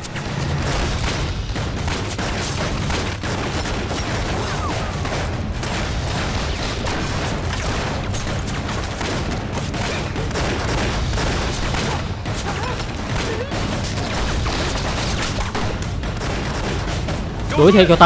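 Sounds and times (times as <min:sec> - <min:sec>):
rapid pistol shots: 0:00.0 - 0:18.0.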